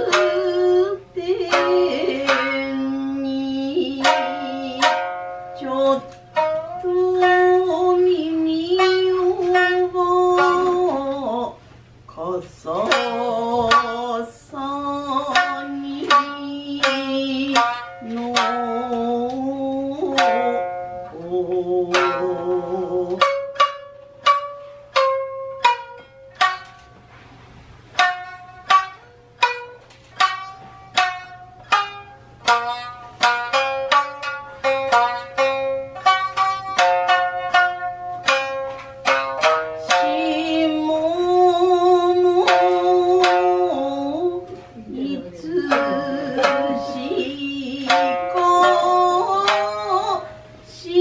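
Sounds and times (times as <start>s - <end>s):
shamisen plucked notes: 0.0s - 11.6s, 12.7s - 51.0s
woman singing: 0.0s - 23.4s, 39.8s - 51.0s.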